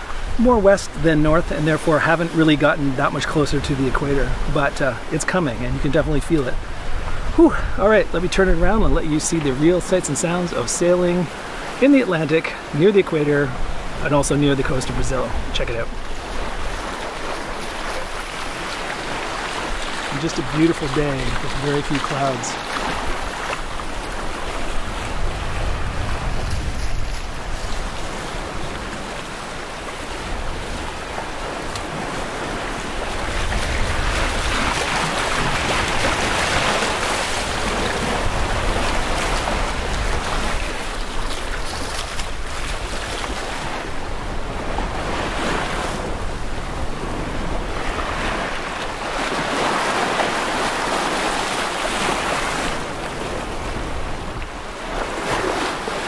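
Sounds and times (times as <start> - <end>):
water rushing along a hull: 0.0 - 56.0
wind buffeting microphone: 13.5 - 50.9.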